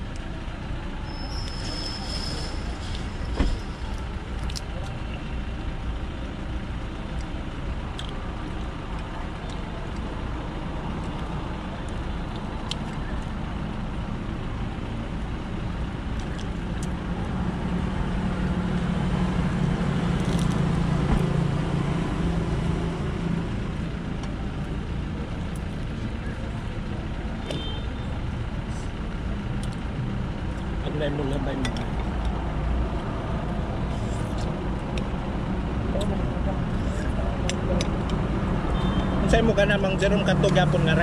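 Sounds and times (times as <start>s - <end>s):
road traffic rumble: 0.0s - 41.0s
vehicle engine hum: 0.0s - 41.0s.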